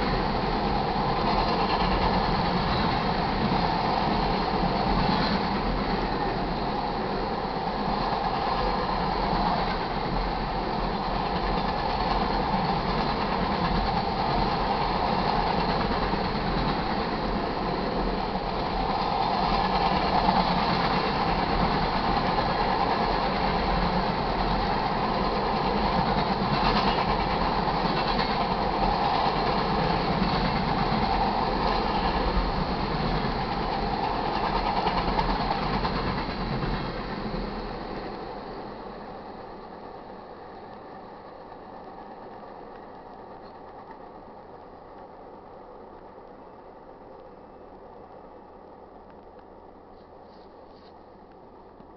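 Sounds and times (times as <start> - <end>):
steel wheels hissing on rails: 0.0 - 49.0
freight train rolling past: 0.0 - 51.9.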